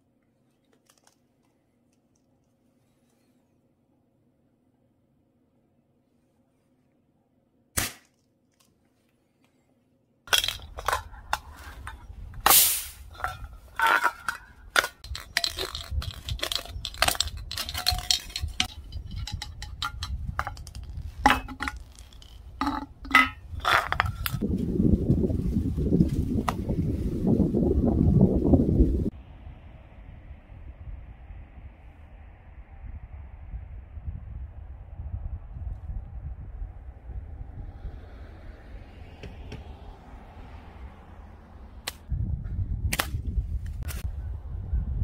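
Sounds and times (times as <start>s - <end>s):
wind on microphone: 10.7s - 45.0s
pliers cutting spray can: 12.5s - 13.0s.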